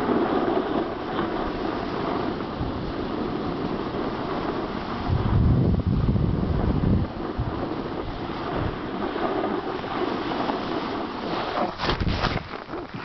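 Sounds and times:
snowboard sliding on snow: 0:00.0 - 0:13.0
wind on microphone: 0:00.0 - 0:13.0
snowboard scuffs: 0:09.2 - 0:13.0.

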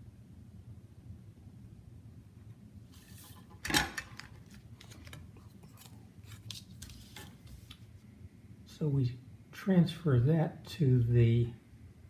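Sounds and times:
drafting tools on tabletop: 0:02.9 - 0:06.0.

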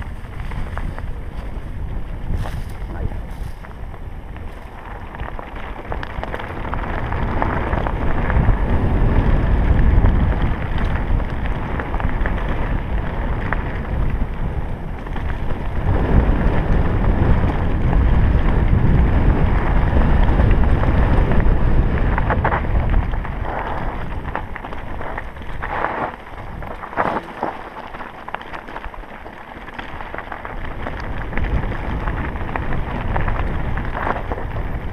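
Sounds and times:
bike tyres crunching on stones: 0:00.0 - 0:34.9
wind buffeting microphone: 0:00.0 - 0:34.9.

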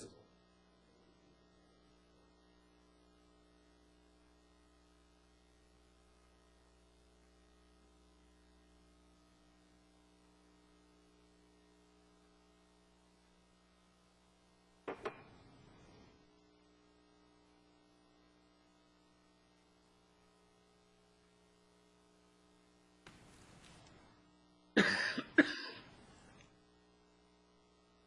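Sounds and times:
low electrical hum: 0:00.0 - 0:28.0
sharp knocks: 0:14.9 - 0:15.3.

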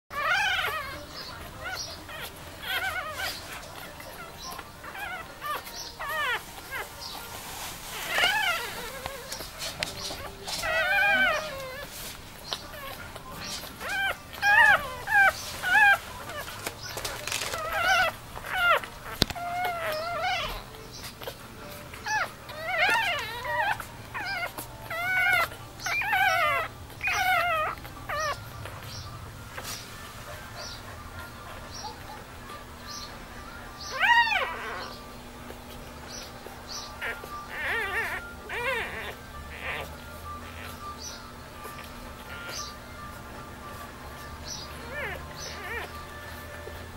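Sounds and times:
puppies crying: 0:00.1 - 0:46.9.

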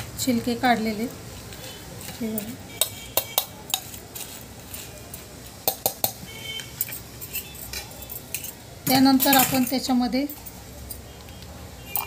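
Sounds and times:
metal spoon scraping metal bowl: 0:06.6 - 0:09.8.

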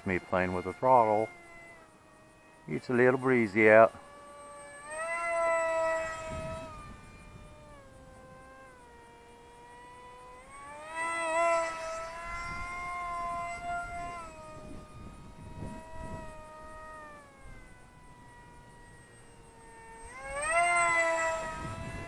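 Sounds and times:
electric motor and propeller whining: 0:00.0 - 0:22.0
wind buffeting microphone: 0:05.0 - 0:08.7, 0:11.6 - 0:18.9, 0:19.6 - 0:22.0.

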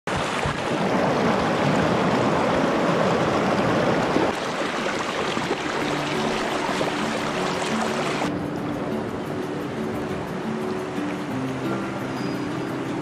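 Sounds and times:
river rapids rushing over rocks: 0:00.1 - 0:08.4.

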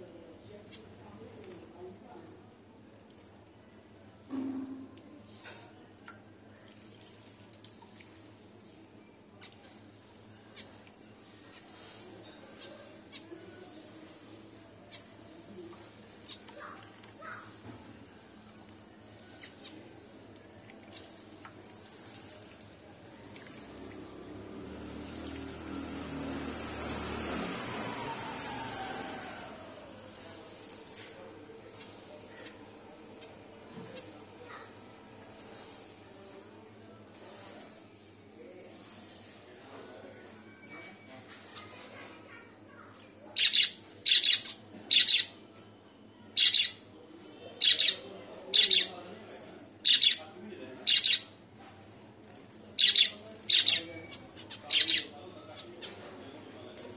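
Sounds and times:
small birds chirping: 0:14.9 - 0:17.6, 0:18.2 - 0:22.1, 0:42.8 - 0:45.4, 0:46.3 - 0:46.9, 0:47.5 - 0:48.9, 0:49.8 - 0:50.2, 0:50.8 - 0:51.3, 0:52.7 - 0:56.9
bird high-pitched calls: 0:43.4 - 0:45.4, 0:46.4 - 0:46.8, 0:47.6 - 0:48.0, 0:49.8 - 0:50.2, 0:50.9 - 0:51.3, 0:52.8 - 0:55.1.

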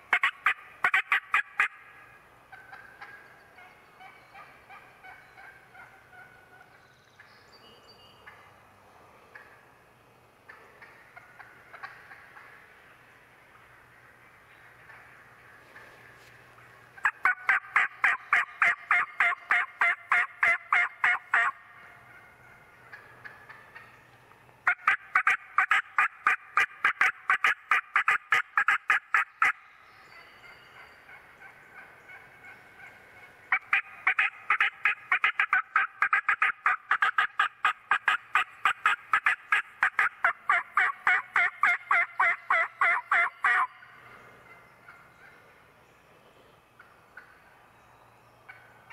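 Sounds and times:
turkey yelps: 0:00.1 - 0:01.9, 0:17.0 - 0:23.8, 0:24.7 - 0:29.6, 0:31.1 - 0:43.8.

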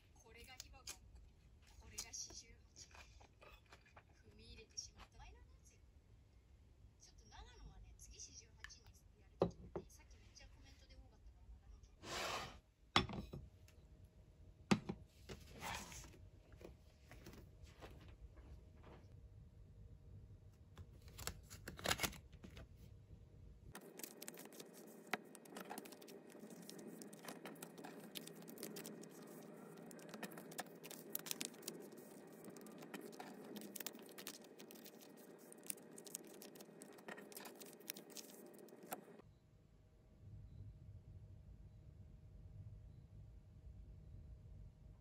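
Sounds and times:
plastic sleeves crinkling: 0:23.8 - 0:39.2.

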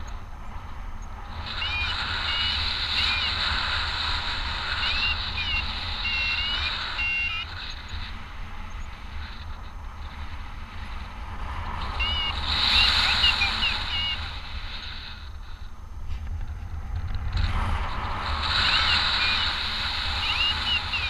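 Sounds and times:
wind rushing over microphone: 0:00.0 - 0:21.0
variometer short pitched beeps: 0:04.8 - 0:07.8.

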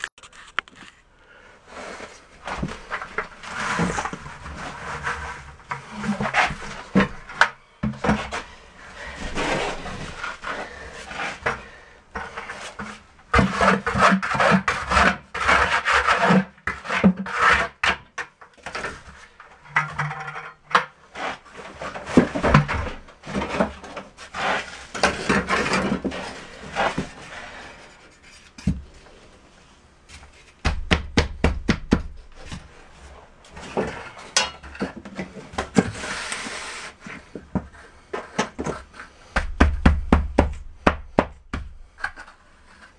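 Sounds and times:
trowel scraping mortar: 0:08.0 - 0:18.0, 0:21.1 - 0:28.3.

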